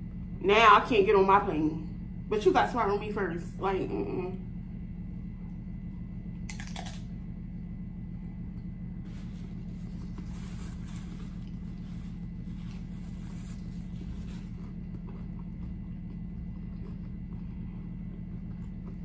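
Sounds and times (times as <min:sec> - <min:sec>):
steady low hum: 0:00.0 - 0:19.0
crunch of a bite: 0:06.4 - 0:07.2
paper napkin crinkling: 0:09.0 - 0:14.8
chewing: 0:09.3 - 0:19.0.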